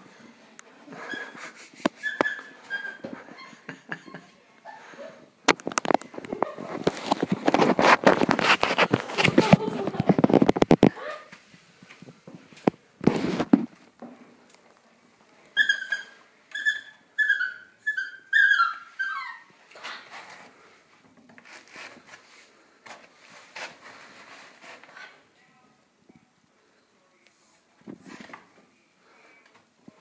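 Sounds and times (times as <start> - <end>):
puppy whimpering: 15.6 - 20.1.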